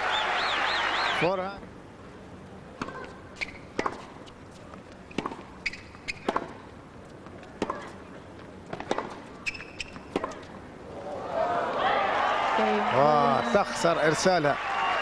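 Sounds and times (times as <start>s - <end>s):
racket striking tennis ball: 2.8s - 4.2s, 5.1s - 6.6s, 7.5s - 8.0s, 8.7s - 10.5s
tennis ball bouncing: 2.8s - 8.0s, 8.7s - 10.6s
shoes squeaking: 2.8s - 10.6s.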